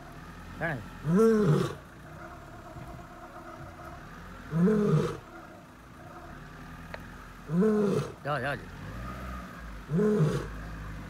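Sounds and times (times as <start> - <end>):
vehicle engine idling: 0.0 - 11.0
lion calling: 0.8 - 6.6, 7.4 - 8.3, 9.8 - 10.6.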